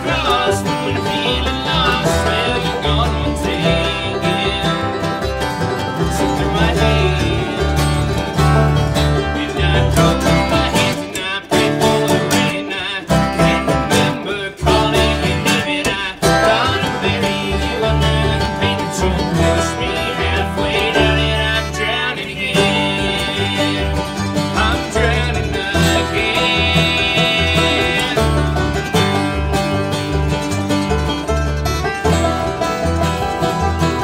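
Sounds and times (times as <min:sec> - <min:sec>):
bluegrass string band playing: 0:00.0 - 0:34.0.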